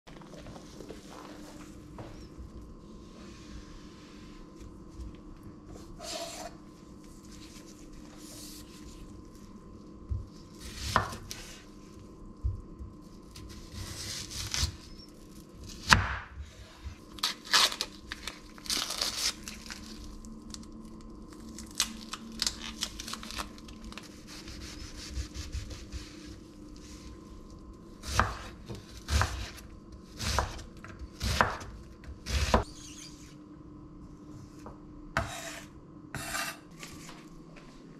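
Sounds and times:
faint steady hum: 0:00.1 - 0:37.9
onion skin crinkling and tearing: 0:17.0 - 0:24.9
knife chopping on board: 0:28.1 - 0:29.6, 0:30.2 - 0:31.7, 0:35.2 - 0:35.6.

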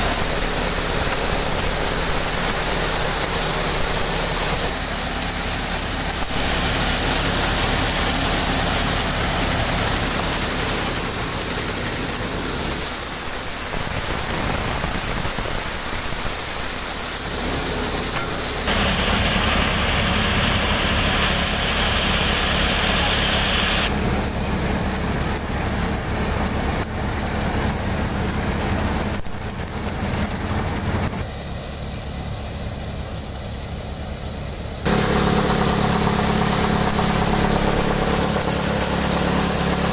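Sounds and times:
thresher drum rushing and rattling: 0:00.0 - 0:23.0, 0:34.9 - 0:39.9
diesel tractor engine running: 0:00.0 - 0:39.9.

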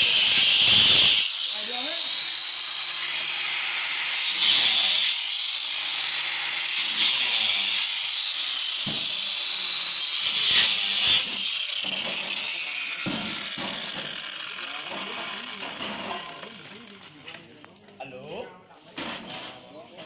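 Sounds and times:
disc cutter grinding stone: 0:00.0 - 0:17.1.

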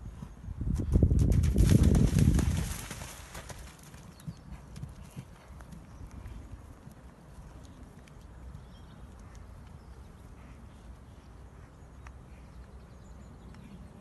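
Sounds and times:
horse hoofbeats on grass: 0:00.7 - 0:09.8.

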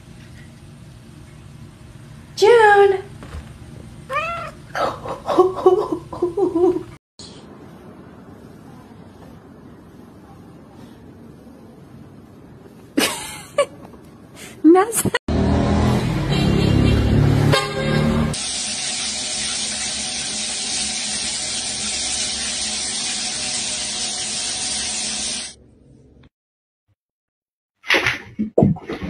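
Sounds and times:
horn blaring tones: 0:15.7 - 0:18.4
shower head spraying water: 0:18.3 - 0:25.6.

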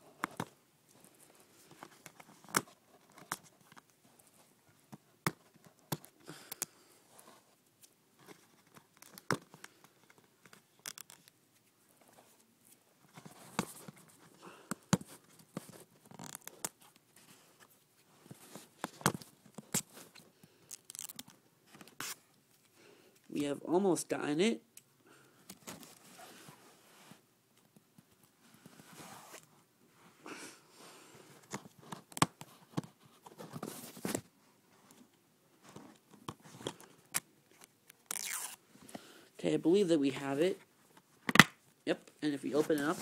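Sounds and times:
plastic wrap crinkling and tearing: 0:19.6 - 0:22.2, 0:37.9 - 0:38.6.

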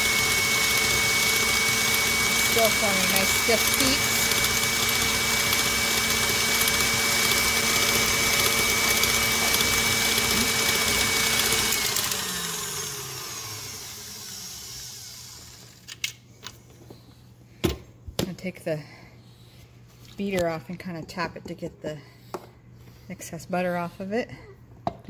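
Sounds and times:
stand mixer motor running: 0:00.0 - 0:15.8.

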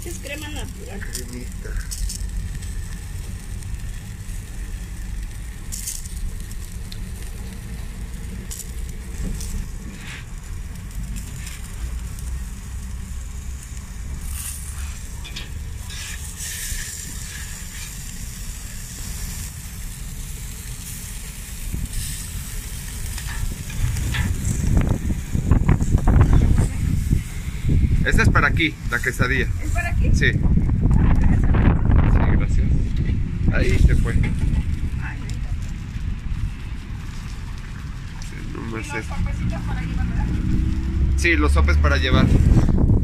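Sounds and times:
constant low rumble: 0:00.0 - 0:43.0
food sizzling on a griddle: 0:00.0 - 0:43.0.

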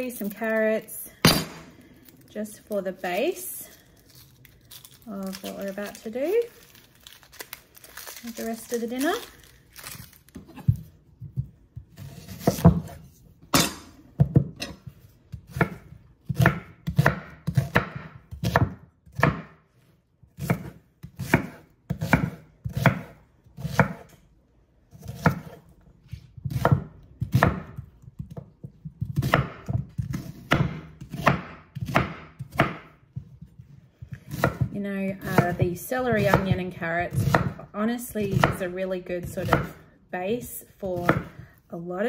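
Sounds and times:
knife chopping on wooden board: 0:10.5 - 0:14.8, 0:15.4 - 0:19.6, 0:20.4 - 0:24.1, 0:26.4 - 0:37.6.

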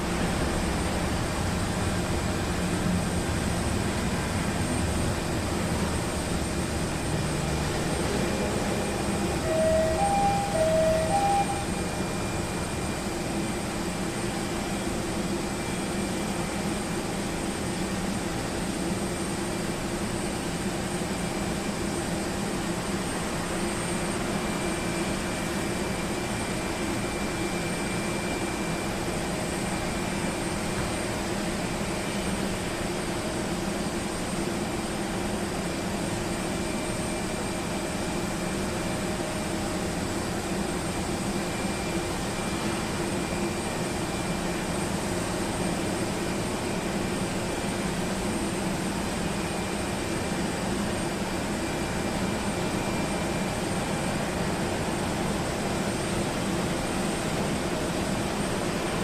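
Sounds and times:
vehicle engine drone: 0:00.1 - 0:12.1
high whine: 0:06.2 - 0:13.3
two-pitch beeps: 0:09.4 - 0:11.9.

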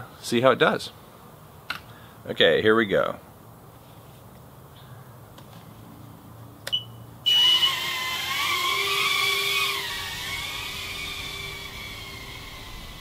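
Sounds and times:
quadcopter motors whining: 0:07.2 - 0:13.0.

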